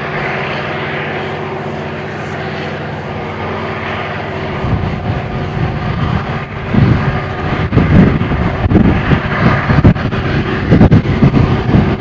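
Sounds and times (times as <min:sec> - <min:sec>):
diesel locomotive engine drone: 0:00.0 - 0:12.0
wind buffeting microphone: 0:00.0 - 0:12.0.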